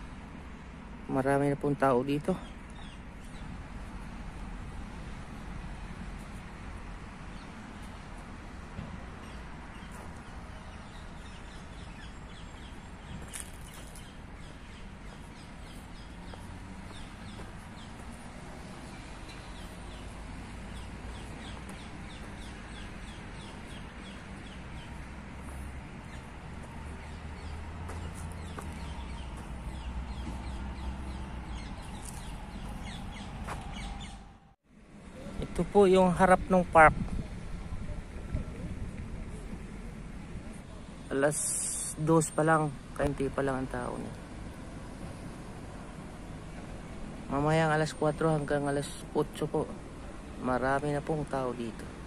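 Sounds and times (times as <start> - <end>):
birds chirping: 1.5 - 4.4, 5.0 - 34.6.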